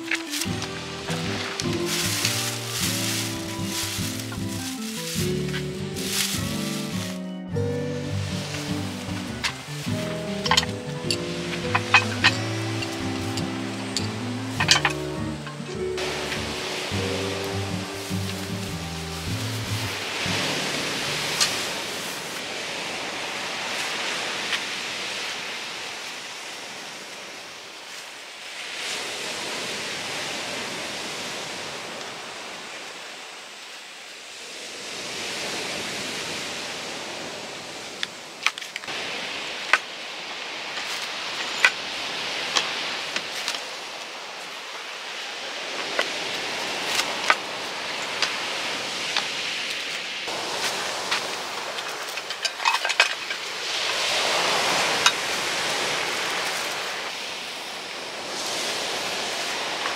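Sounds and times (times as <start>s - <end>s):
steady hissy rushing noise: 0.0s - 59.9s
cooking gear clicking and clinking: 9.4s - 15.6s.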